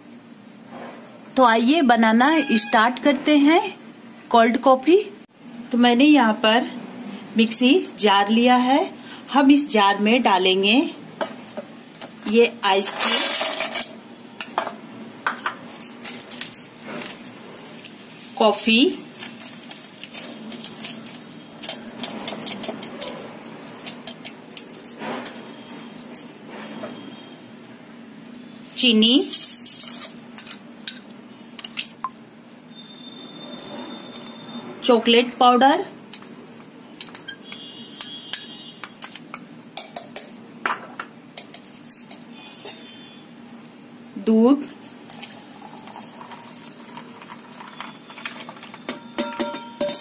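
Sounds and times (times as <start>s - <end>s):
spoon clinking on steel jar: 48.2s - 50.0s.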